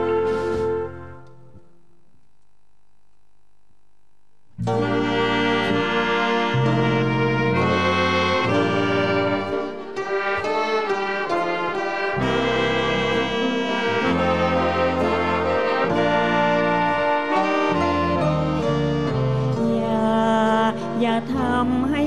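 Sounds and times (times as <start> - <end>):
big band with strings playing: 0.0 - 1.2, 4.6 - 19.7.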